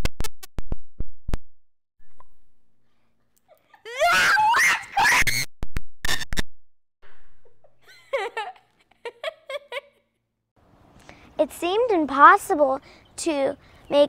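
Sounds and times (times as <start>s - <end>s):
girl laughing: 3.4s - 5.4s, 7.4s - 10.1s
girl screaming: 3.8s - 5.4s.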